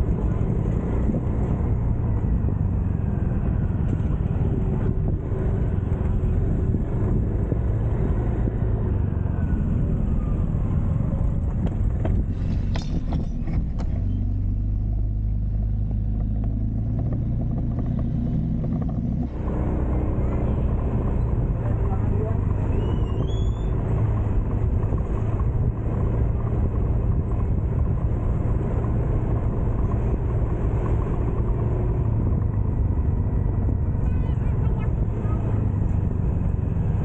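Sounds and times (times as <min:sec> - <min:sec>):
wind and road noise: 0:00.0 - 0:37.0
motor scooter engine rumbling: 0:09.3 - 0:37.0.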